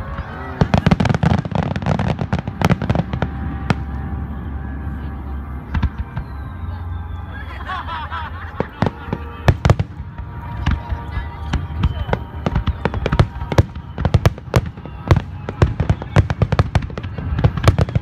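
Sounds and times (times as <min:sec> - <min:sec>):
steady low rumble: 0:00.0 - 0:18.0
fireworks cracks and booms: 0:00.1 - 0:04.0, 0:08.5 - 0:18.0.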